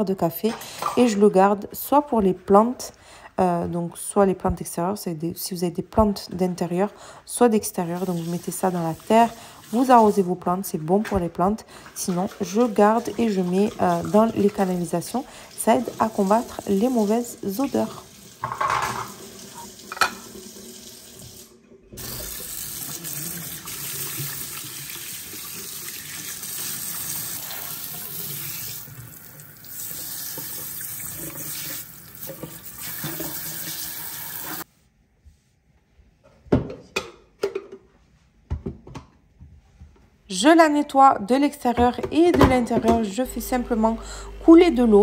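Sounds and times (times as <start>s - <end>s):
tap water running into sink: 12.1s - 34.6s.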